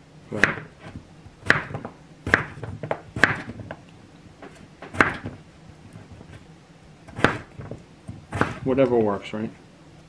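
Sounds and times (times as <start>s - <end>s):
knife chopping potato on board: 0.3s - 3.8s, 4.5s - 5.4s, 7.1s - 9.0s.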